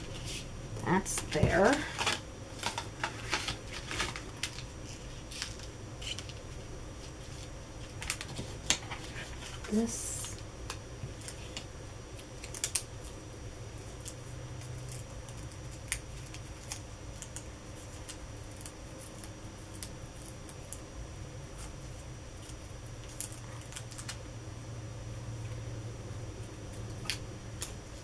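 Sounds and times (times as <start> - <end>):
paper and card crackling: 0.0 - 10.4
steady low hum: 0.0 - 28.0.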